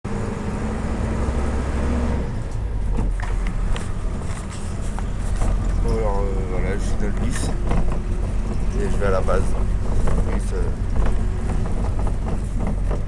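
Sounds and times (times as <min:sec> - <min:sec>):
bus engine humming: 0:00.0 - 0:13.0
bodywork rattling and knocking: 0:04.1 - 0:13.0.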